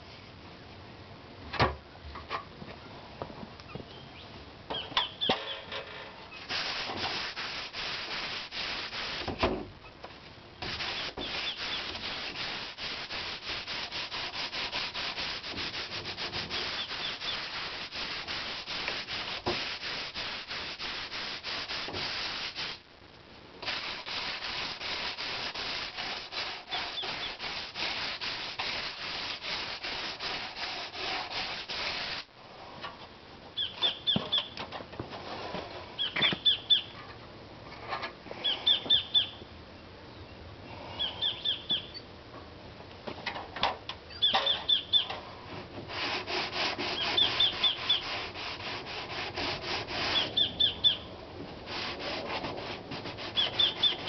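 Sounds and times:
hand sanding scratching strokes: 6.4s - 9.4s, 10.6s - 22.8s, 23.6s - 32.3s, 45.8s - 51.0s, 51.6s - 54.0s
high chirping: 10.9s - 12.3s, 16.6s - 17.5s, 33.6s - 34.6s, 36.0s - 37.0s, 38.4s - 39.4s, 40.9s - 42.1s, 44.1s - 45.1s, 47.0s - 48.1s, 50.1s - 51.1s, 53.4s - 54.0s.

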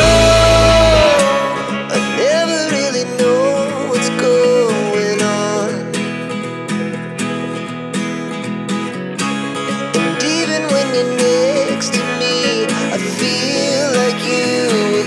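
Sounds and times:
heavy low bass part: 0.0s - 1.9s
sliding melody line: 0.0s - 3.0s
background music with guitar: 0.0s - 15.0s.

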